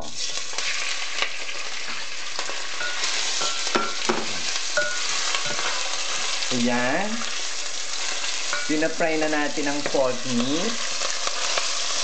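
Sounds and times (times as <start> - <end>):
meat sizzling in hot oil: 0.0 - 12.0
spatula scraping pot: 2.8 - 6.3.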